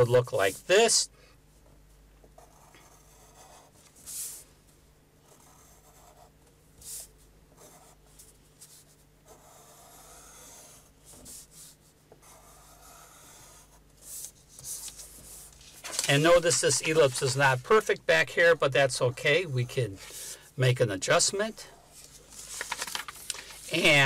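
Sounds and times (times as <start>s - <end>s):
pencil scratching on paper: 2.4s - 4.4s, 5.2s - 20.4s.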